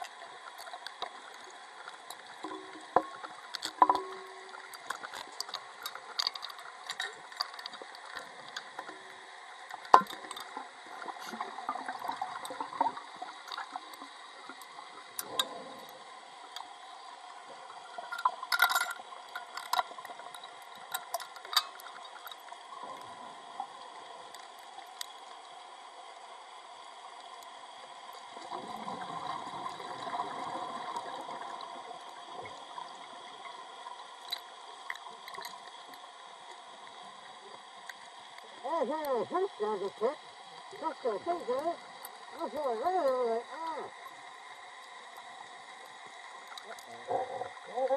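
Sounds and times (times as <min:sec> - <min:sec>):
gas bubbling and gurgling: 0:00.0 - 0:24.0, 0:28.2 - 0:37.8, 0:40.7 - 0:47.9
underwater clicks and crackles: 0:00.0 - 0:47.9.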